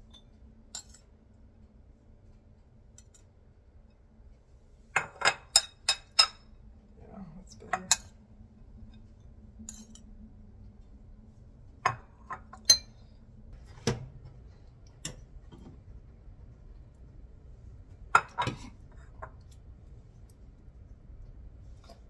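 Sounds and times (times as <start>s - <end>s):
dishes and utensils clinking: 0.8s - 1.1s, 5.0s - 6.5s, 9.0s - 10.1s, 11.9s - 13.0s, 18.2s - 19.4s.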